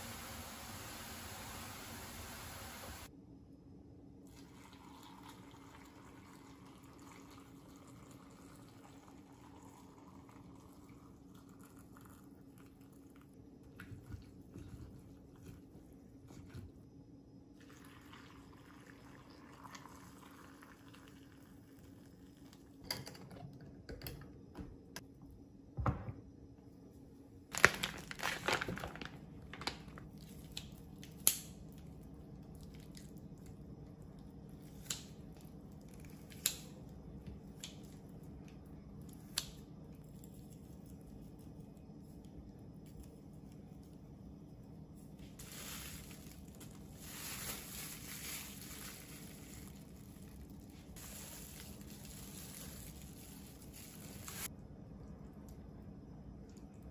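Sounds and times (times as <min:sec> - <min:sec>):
liquid and rustling noises: 0:11.3 - 0:16.8, 0:27.5 - 0:36.4, 0:45.1 - 0:54.5.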